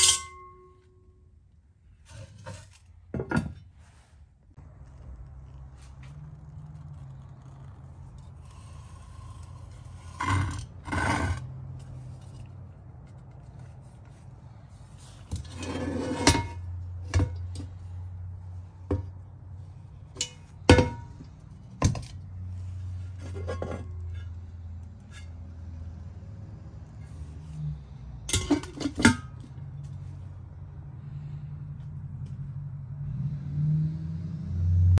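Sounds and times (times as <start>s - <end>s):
cast iron clinks and knocks: 0.0s - 0.8s, 20.1s - 22.2s, 28.3s - 29.5s
cast iron scraping rattle: 23.0s - 24.4s.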